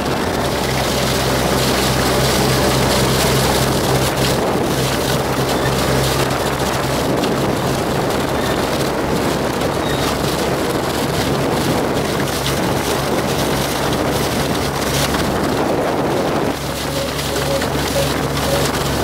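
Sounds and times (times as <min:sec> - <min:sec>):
boat engine hum: 0:00.0 - 0:19.0
water rushing and spraying: 0:00.0 - 0:19.0.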